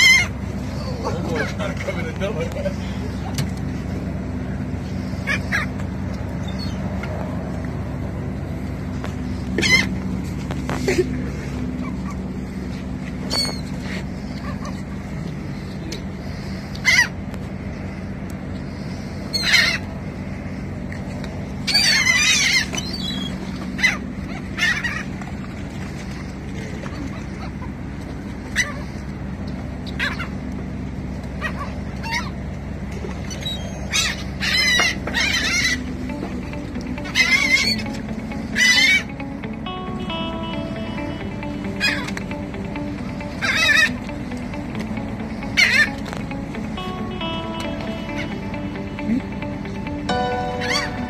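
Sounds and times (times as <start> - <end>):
gull calls: 0.0 - 0.4, 9.5 - 10.0, 13.2 - 15.0, 19.3 - 19.9, 21.6 - 25.2, 31.4 - 32.4, 33.2 - 36.2, 36.9 - 41.0, 41.6 - 44.2, 45.4 - 46.0, 50.1 - 51.0
gulls squawking: 0.0 - 3.3, 4.7 - 7.0, 9.2 - 10.3, 11.6 - 17.3, 18.7 - 20.6, 21.6 - 29.1, 29.8 - 30.5, 31.3 - 32.5, 33.1 - 51.0
low engine hum: 0.0 - 51.0.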